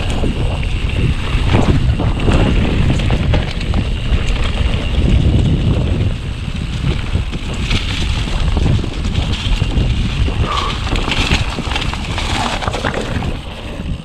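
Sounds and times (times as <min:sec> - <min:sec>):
bike rattling and knocking: 0:00.0 - 0:14.0
tyres rolling over leaves and dirt: 0:00.0 - 0:14.0
wind rumbling on microphone: 0:00.0 - 0:14.0.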